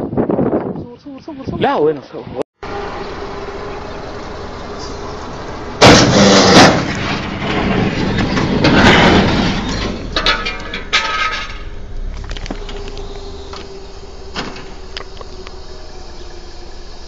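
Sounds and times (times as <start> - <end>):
crunching metal: 3.6 - 17.0
loud impact bang: 5.8 - 11.9
breaking glass: 5.8 - 12.8
rattles and clicks: 5.8 - 15.7.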